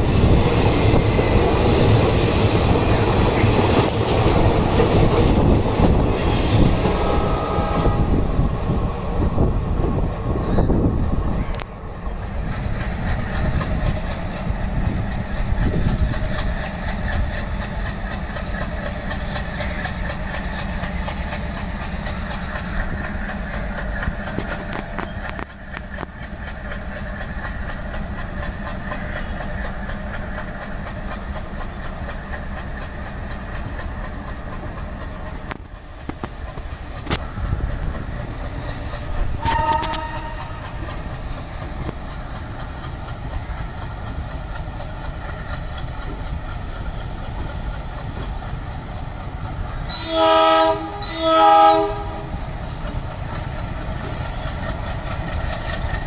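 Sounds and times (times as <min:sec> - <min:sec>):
train wheels clacking over rail joints: 0:00.0 - 0:08.1, 0:09.4 - 0:56.0
locomotive horn: 0:06.9 - 0:08.3, 0:39.4 - 0:40.6, 0:49.9 - 0:52.4.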